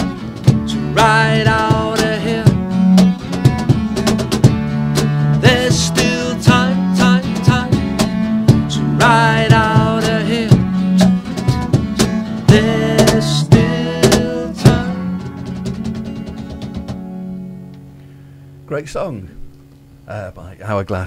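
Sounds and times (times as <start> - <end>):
strummed acoustic guitars: 0.0 - 18.5
bass guitar: 0.0 - 20.2
sliding melody line: 0.5 - 16.3.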